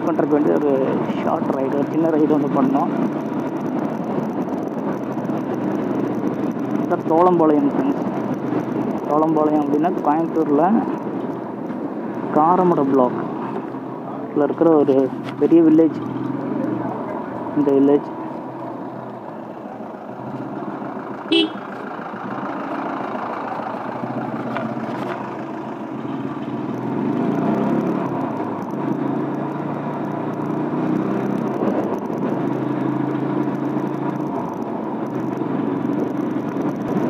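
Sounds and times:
motorcycle engine hum: 0:00.0 - 0:37.0
wind and road noise: 0:00.0 - 0:37.0
horn beep: 0:21.3 - 0:21.6.

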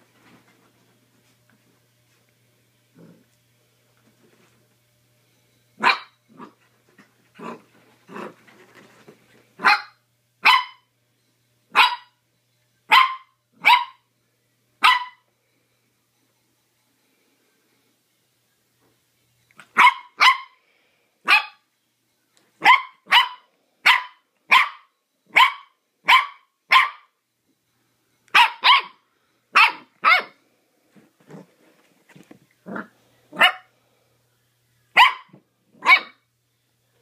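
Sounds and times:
puppy yapping: 0:28.4 - 0:29.0, 0:29.6 - 0:30.4, 0:35.0 - 0:36.2.

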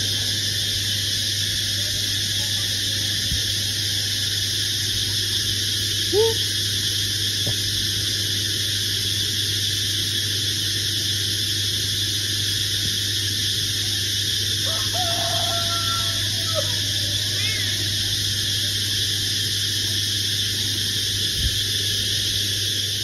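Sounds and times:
cat meowing: 0:17.3 - 0:17.8.

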